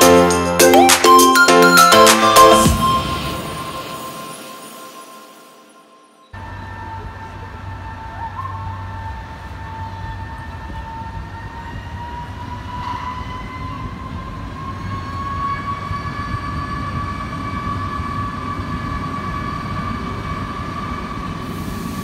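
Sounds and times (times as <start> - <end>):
train motor whine rising: 0.0 - 22.0
train running gear rumble: 6.4 - 22.0.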